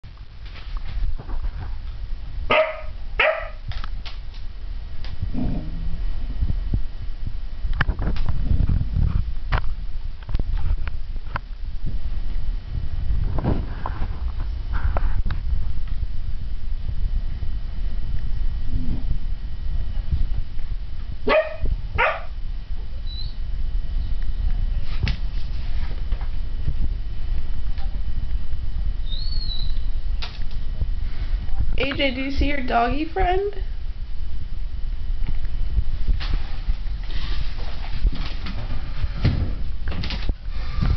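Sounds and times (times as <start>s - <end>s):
dog barking: 2.5s - 3.6s, 21.3s - 22.4s
dog soft low vocal sound: 5.2s - 6.2s, 18.6s - 19.2s.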